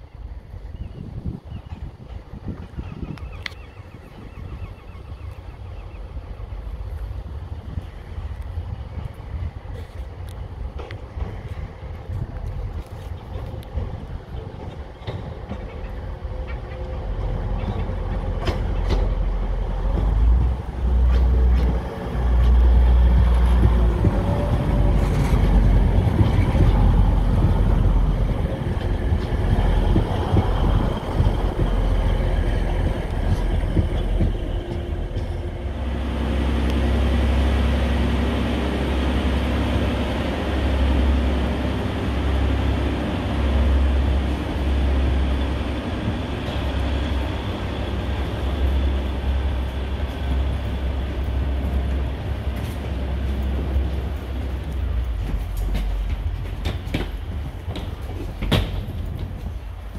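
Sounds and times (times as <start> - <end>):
diesel train engines rumbling: 0.0 - 59.9
standing train engine rumble: 0.0 - 59.9
train wheel clicks: 10.2 - 35.6, 49.4 - 59.9.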